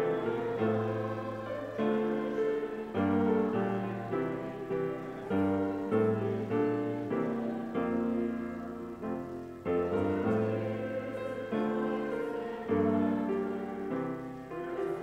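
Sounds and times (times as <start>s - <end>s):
grand piano playing slow chords: 0.0s - 15.0s.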